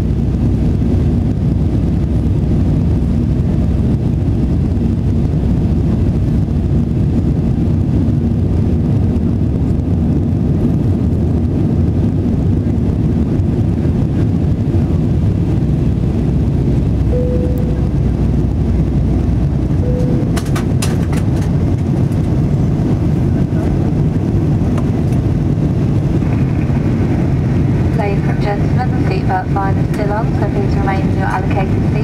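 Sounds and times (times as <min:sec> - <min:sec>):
jet engines roaring in cabin: 0:00.0 - 0:32.0
rushing air: 0:00.1 - 0:29.0
faint steady hum: 0:17.0 - 0:21.0, 0:26.6 - 0:32.0.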